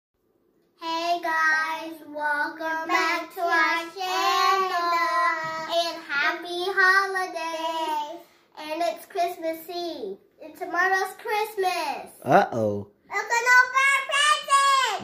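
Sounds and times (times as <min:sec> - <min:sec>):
girls singing: 0:02.8 - 0:05.9.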